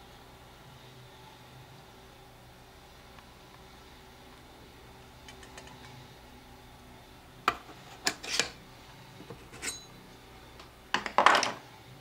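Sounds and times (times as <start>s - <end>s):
hard objects clicking and knocking: 10.9s - 11.6s.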